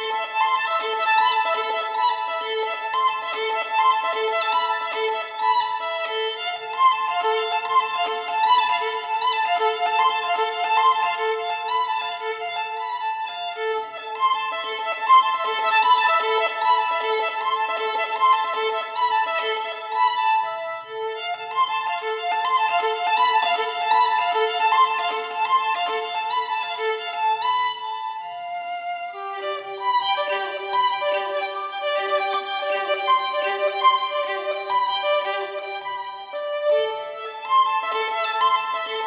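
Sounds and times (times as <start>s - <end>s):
violin playing fast run: 0.0s - 39.0s.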